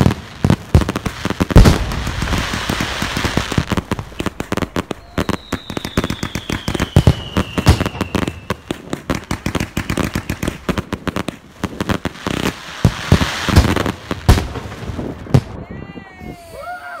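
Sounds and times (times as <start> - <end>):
fireworks bangs and crackling: 0.0 - 16.7
firework whistle falling in pitch: 4.9 - 8.4.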